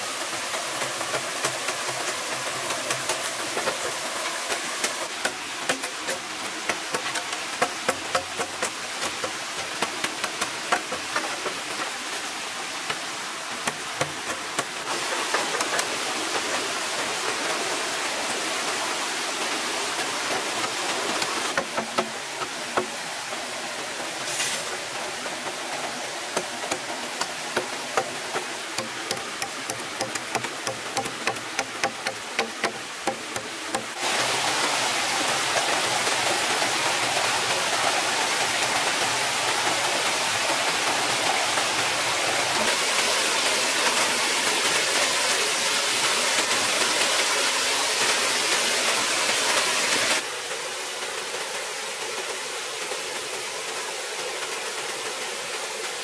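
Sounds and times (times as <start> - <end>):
stream rushing: 0.0 - 56.0
knife chopping bamboo: 5.1 - 11.2, 26.4 - 34.0.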